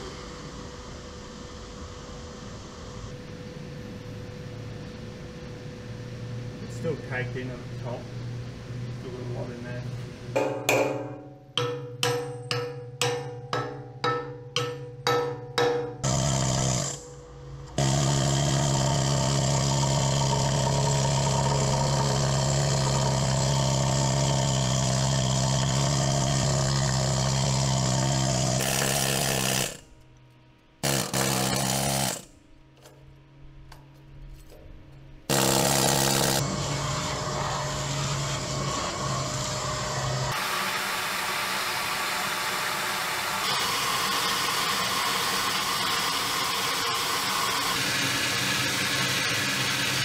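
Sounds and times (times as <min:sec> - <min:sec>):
hammer ringing on steel plate: 0:10.4 - 0:16.1
power tool running: 0:15.9 - 0:30.0, 0:30.8 - 0:32.3, 0:35.3 - 0:50.0.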